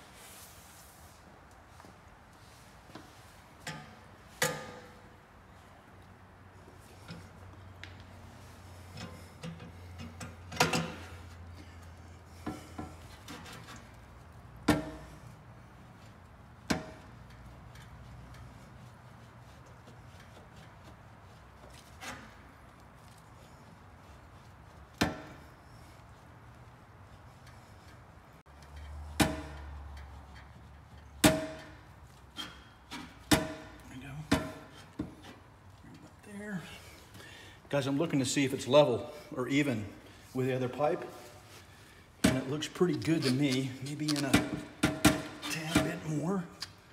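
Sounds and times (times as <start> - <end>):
metallic knocks on muffler: 14.6 - 15.3, 28.8 - 29.8, 31.2 - 31.9.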